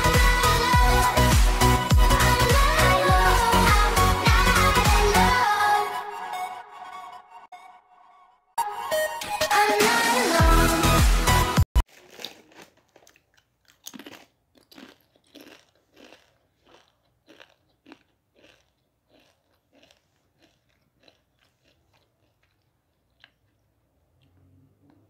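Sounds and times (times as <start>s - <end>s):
chewing crunchy food: 11.8s - 25.0s.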